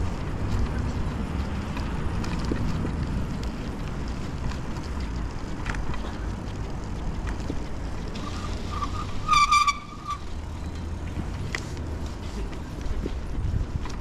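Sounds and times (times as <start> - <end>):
road traffic: 0.0 - 14.0
tyres rumbling: 0.0 - 14.0
wind rush on microphone: 11.2 - 14.0.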